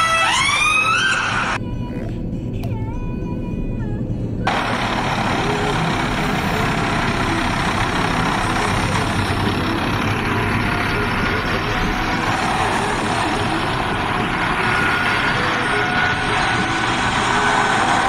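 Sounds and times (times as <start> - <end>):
tanks driving on cobbles: 4.5 - 18.0.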